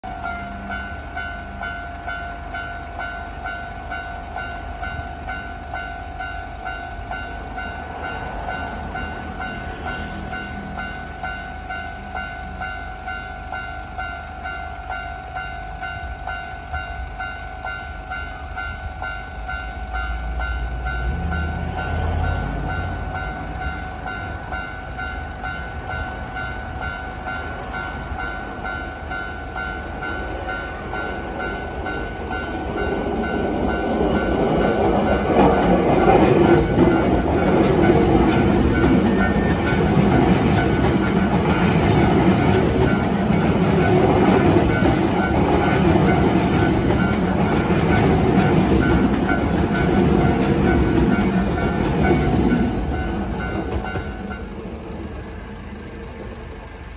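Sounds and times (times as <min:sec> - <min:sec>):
level-crossing warning bell: 0:00.0 - 0:56.9.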